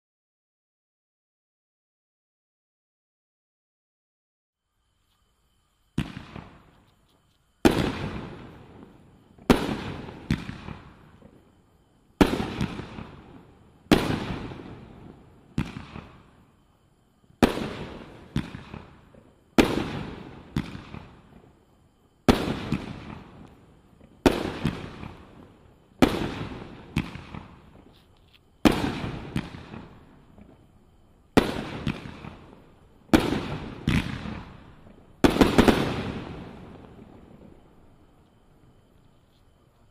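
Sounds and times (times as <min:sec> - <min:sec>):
firework bangs with glittering tail: 0:05.9 - 0:06.9, 0:07.6 - 0:11.6, 0:12.2 - 0:16.6, 0:17.3 - 0:27.9, 0:28.6 - 0:38.0.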